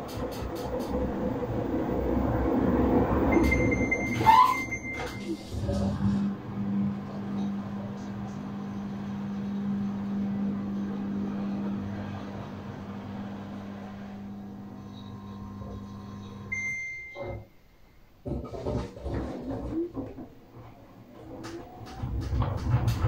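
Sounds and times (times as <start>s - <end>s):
washing machine hum: 0.0s - 23.0s
washing machine drum tumbling: 18.2s - 23.0s.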